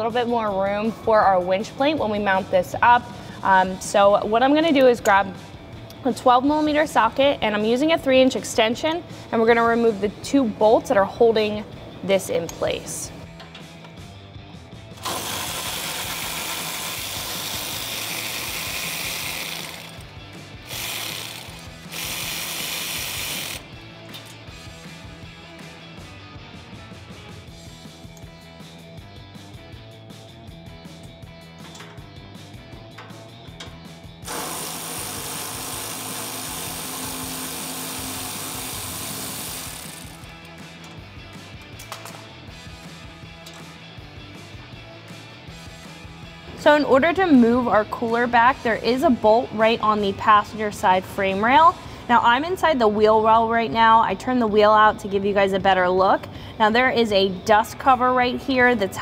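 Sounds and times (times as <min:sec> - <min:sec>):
electric ratchet running: 0:15.0 - 0:23.7, 0:34.2 - 0:40.9
power tool spinning socket: 0:15.0 - 0:24.4, 0:32.9 - 0:41.0.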